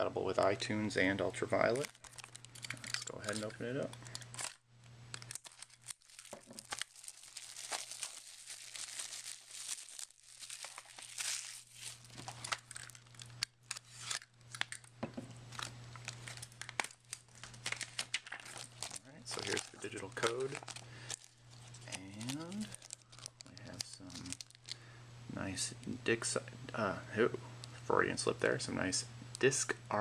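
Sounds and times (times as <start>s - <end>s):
plastic wrap crinkling and tearing: 1.4s - 14.9s, 15.5s - 24.8s.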